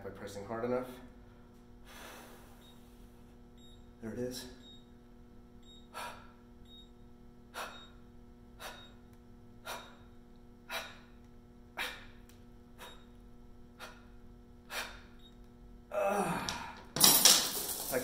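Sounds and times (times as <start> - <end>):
faint steady hum: 0.0 - 18.0
man breathing forcefully: 1.8 - 2.6, 5.9 - 6.4, 8.6 - 9.0, 9.6 - 13.1, 13.8 - 15.2.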